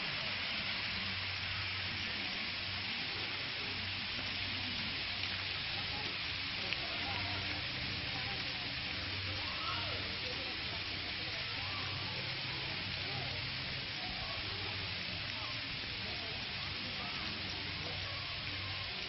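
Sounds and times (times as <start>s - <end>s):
steady outdoor hiss: 0.0s - 19.0s.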